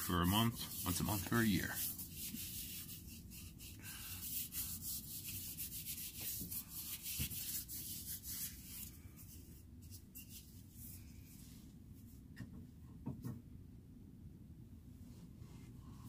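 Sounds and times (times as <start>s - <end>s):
glove rubbing on wood: 0.0s - 11.0s.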